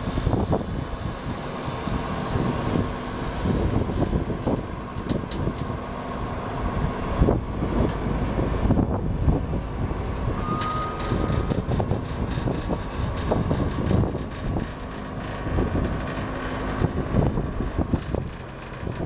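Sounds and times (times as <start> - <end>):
truck diesel engine running: 0.0 - 19.0
short steady beep: 10.4 - 11.4.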